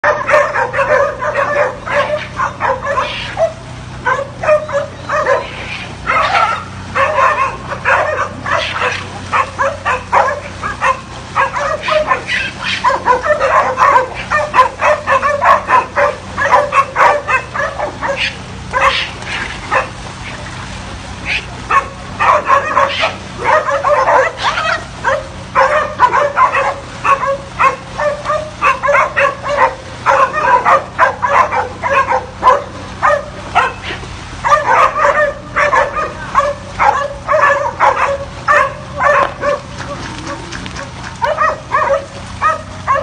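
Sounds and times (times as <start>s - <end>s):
dogs barking and yelping: 0.0s - 43.0s.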